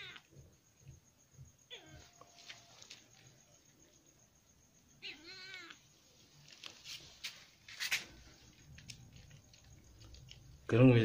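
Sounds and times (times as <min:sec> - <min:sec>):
cat meowing: 0:00.0 - 0:00.3, 0:01.7 - 0:02.3, 0:05.0 - 0:05.8
brief rustle: 0:06.4 - 0:09.4.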